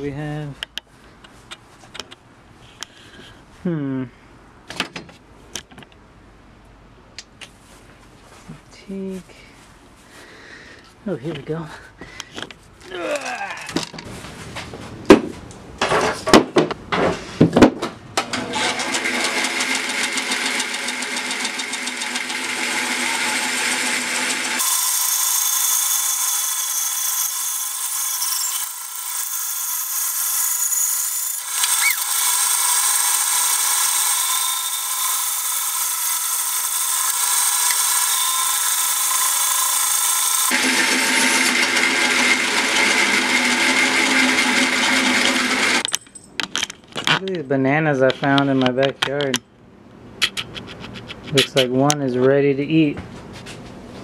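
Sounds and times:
band saw cutting wood: 18.3 - 45.8.

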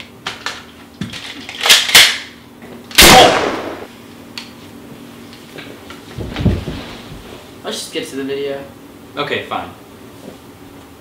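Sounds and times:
loud gunshot: 3.0 - 3.9.

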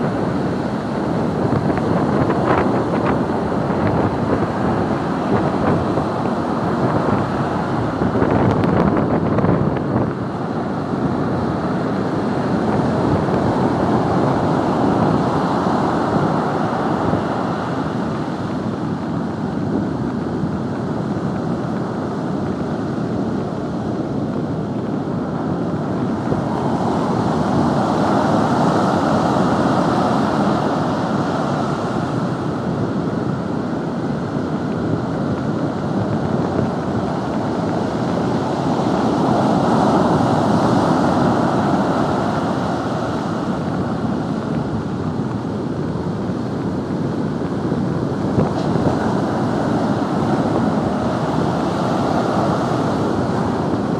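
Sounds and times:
storm waves breaking on beach: 0.0 - 53.9
wind buffeting microphone: 0.0 - 53.9.

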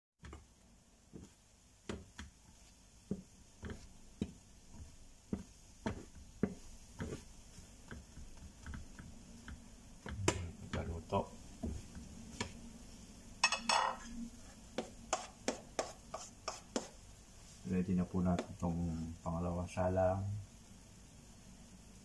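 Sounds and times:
plastic spatula scraping frying pan: 4.7 - 9.0.

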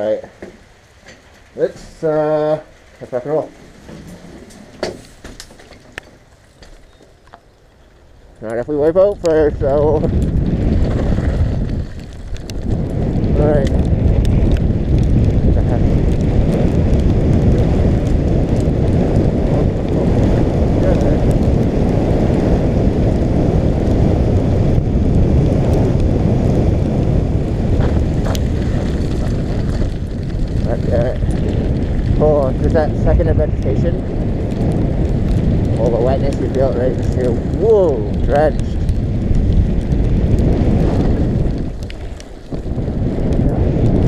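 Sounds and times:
engine and tyre rumble: 0.0 - 44.0
wind buffeting microphone: 0.0 - 44.0
small ticks: 11.6 - 12.8, 38.6 - 43.6.

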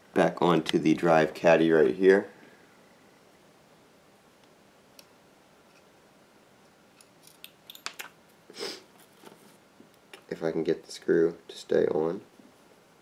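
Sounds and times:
soft rustle: 8.6 - 9.9.

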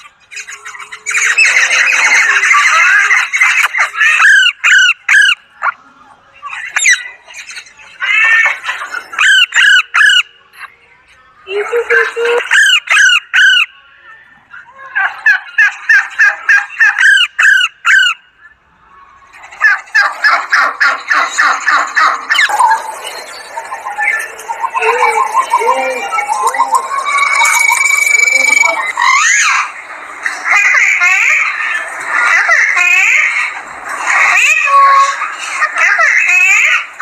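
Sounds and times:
parakeet calling: 19.4 - 37.0.

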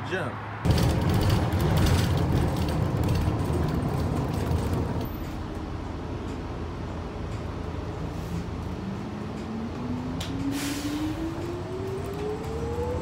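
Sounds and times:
bus engine rumbling: 0.0 - 13.0
bus cabin rattling: 0.7 - 5.5.

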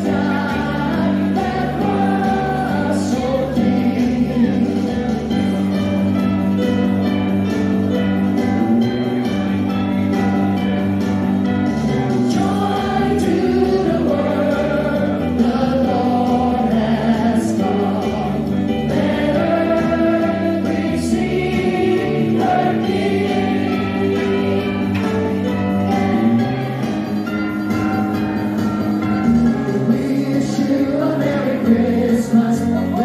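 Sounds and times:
choir singing a carol: 0.0 - 4.6, 12.3 - 25.2.

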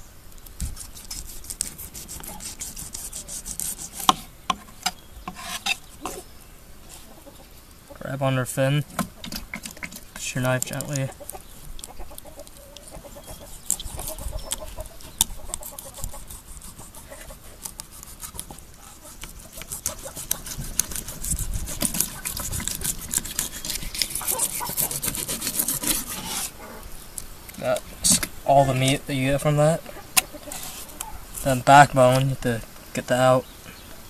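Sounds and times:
knife crackling through fish scales: 9.3 - 26.6.

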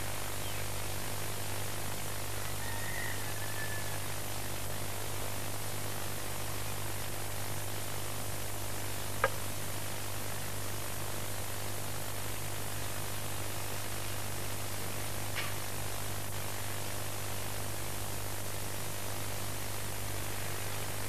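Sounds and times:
recording hiss and hum: 0.0 - 21.0
sharp click: 9.2 - 9.4.

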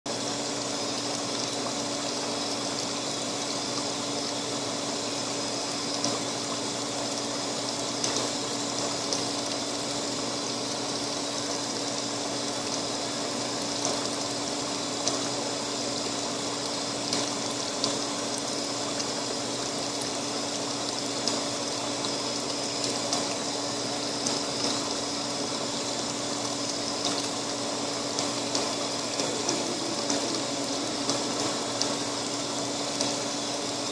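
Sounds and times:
machine hum with rushing noise: 22.5 - 33.9.

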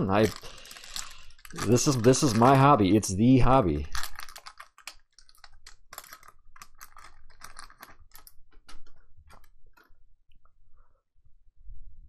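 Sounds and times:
foil wrapper crinkling: 0.0 - 9.5.

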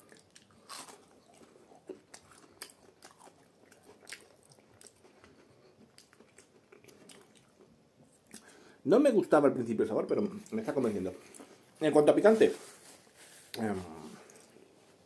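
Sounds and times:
chewing crunchy fried snack: 0.0 - 7.7.

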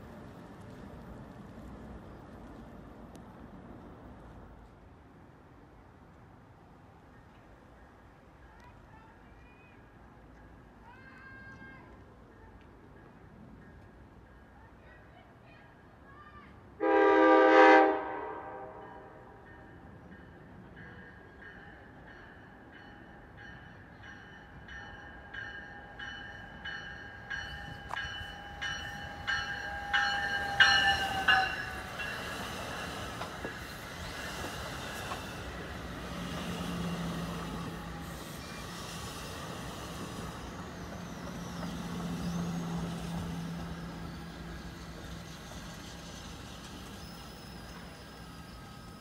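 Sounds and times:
train coaches rumbling past: 16.4 - 49.0
train bell ringing: 18.8 - 34.2, 40.2 - 49.0.

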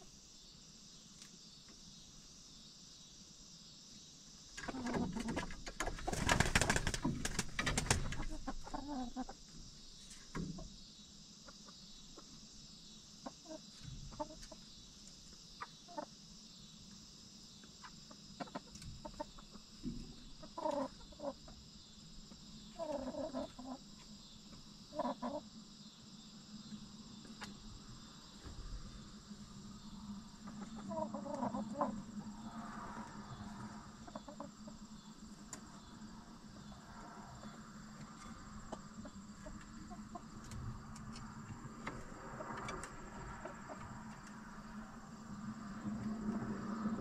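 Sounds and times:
hens clucking softly: 4.6 - 6.3, 7.8 - 9.6, 13.2 - 16.2, 17.7 - 21.6, 22.6 - 25.5, 30.0 - 47.0.

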